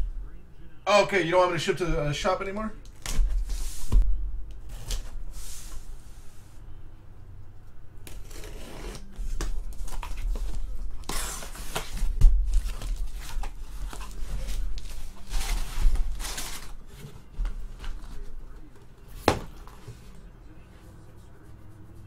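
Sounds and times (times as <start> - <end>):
cardboard and tape tearing: 8.0 - 17.0.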